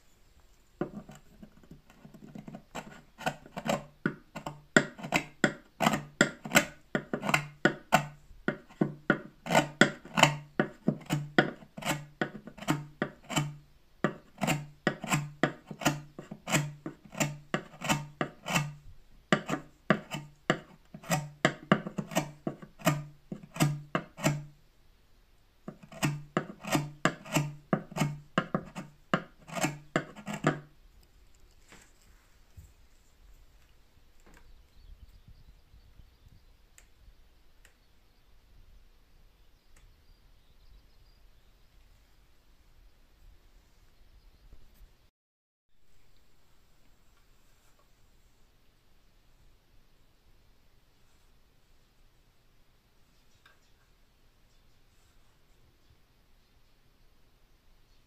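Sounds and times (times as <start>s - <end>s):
file rasping on wood: 0.8s - 24.5s, 25.7s - 30.7s.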